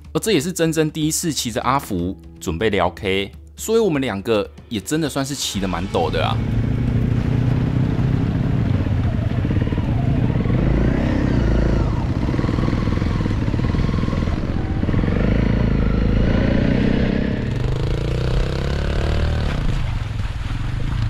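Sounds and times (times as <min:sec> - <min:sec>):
dirt bike engine revving: 0:05.6 - 0:19.9.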